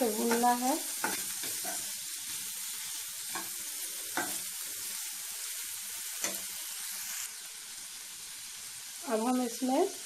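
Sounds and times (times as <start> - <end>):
food sizzling in a frying pan: 0.0 - 10.0
spatula scraping a pan: 0.1 - 5.0.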